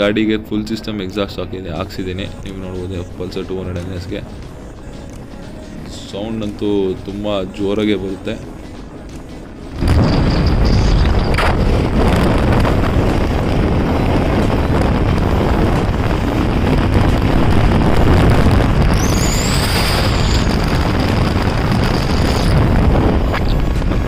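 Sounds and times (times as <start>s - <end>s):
motorcycle engine and exhaust: 1.4s - 24.0s
wind buffeting microphone: 5.9s - 24.0s.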